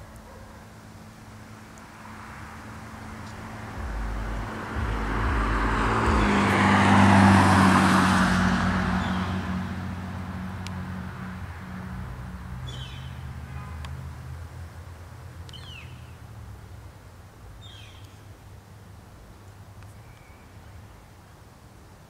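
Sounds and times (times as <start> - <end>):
car driving past: 2.0 - 14.5.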